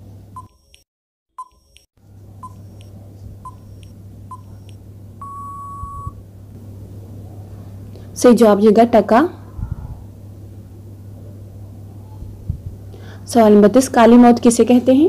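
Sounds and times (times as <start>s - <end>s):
short electronic beeps: 1.4s - 2.9s, 3.5s - 6.2s
long electronic beep: 5.2s - 6.2s.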